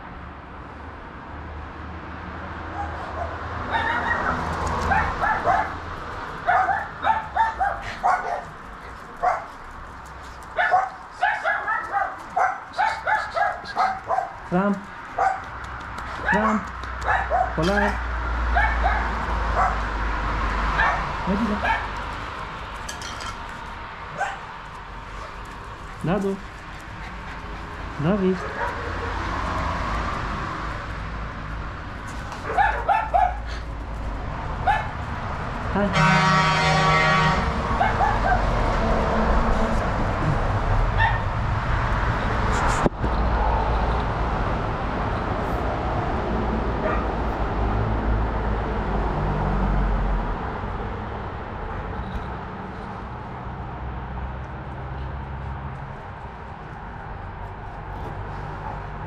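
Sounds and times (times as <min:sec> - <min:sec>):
dog yapping: 0:02.7 - 0:05.8, 0:06.4 - 0:09.6, 0:10.6 - 0:14.4, 0:15.2 - 0:15.5, 0:16.2 - 0:18.0, 0:18.6 - 0:19.8, 0:20.8 - 0:22.0, 0:24.1 - 0:24.5, 0:28.4 - 0:29.3, 0:32.4 - 0:33.6, 0:34.7 - 0:34.9, 0:37.8 - 0:38.5, 0:41.0 - 0:41.3
dog barking short high yaps: 0:02.8 - 0:05.7.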